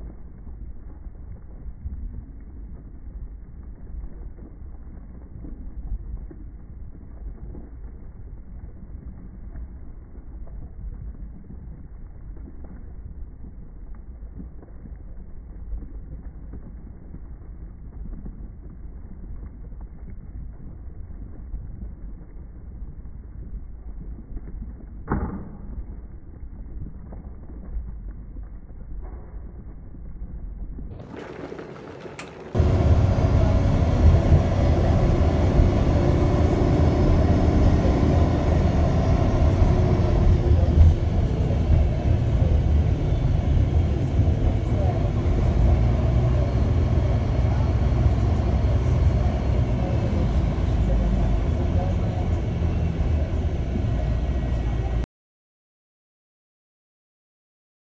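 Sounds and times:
faint ticks of bubbling: 0.0s - 25.0s, 25.7s - 31.4s
electric kettle rumble: 31.0s - 55.0s.

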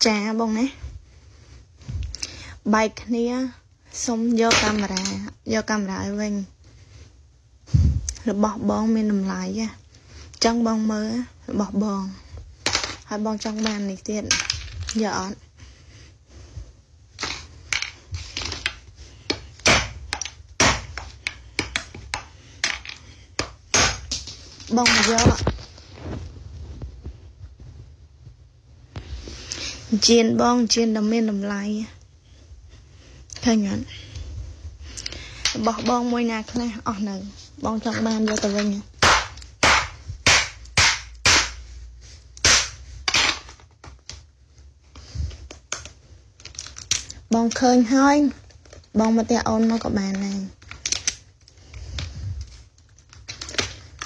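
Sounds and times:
sharp smacks on wooden floor: 39.0s - 41.6s.

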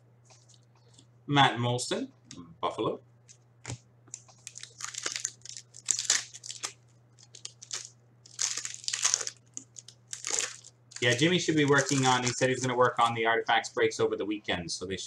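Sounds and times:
foil wrapper crinkling and tearing: 4.2s - 13.1s.

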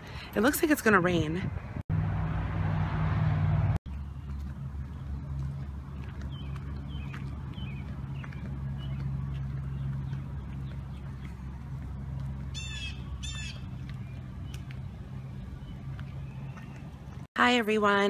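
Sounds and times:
steady low rumble: 3.4s - 17.3s
small birds chirping: 3.9s - 17.3s
bird calling: 12.5s - 17.1s.

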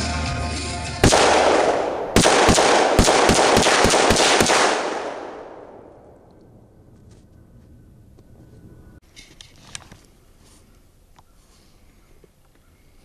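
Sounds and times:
rifle shots echoing: 1.0s - 6.3s.

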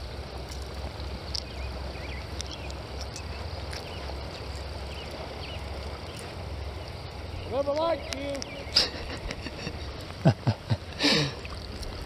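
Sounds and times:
faint bird chirps: 6.8s - 9.2s.

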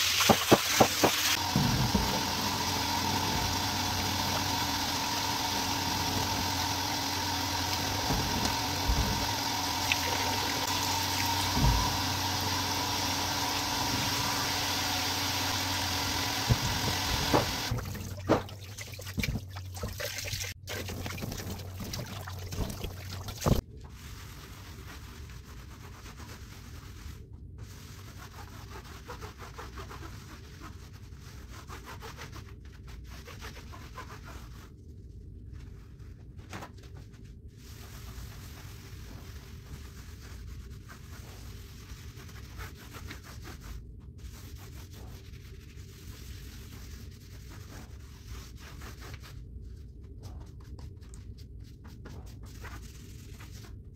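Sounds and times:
running water splashing on mat: 0.0s - 23.6s.

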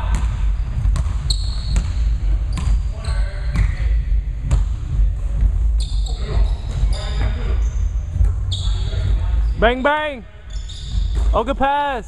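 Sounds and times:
basketball bouncing: 0.0s - 2.8s, 4.4s - 6.0s
sneaker squeaks: 0.0s - 4.0s, 5.7s - 11.4s.

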